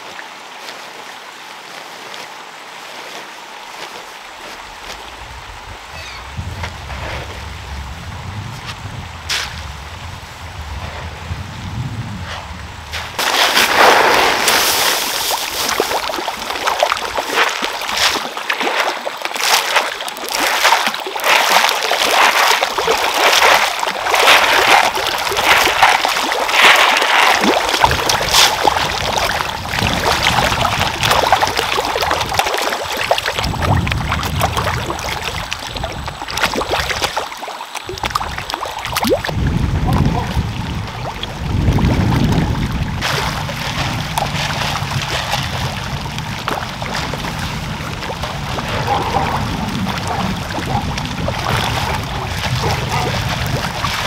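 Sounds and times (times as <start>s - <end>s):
fish splashing at the surface: 13.2s - 54.0s.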